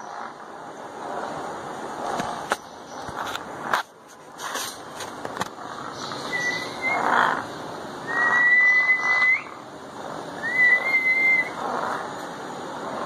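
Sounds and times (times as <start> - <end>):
rough noisy parrot sounds: 0.0 - 13.0
parrot whistling: 6.3 - 7.2, 8.0 - 9.6, 10.4 - 11.6.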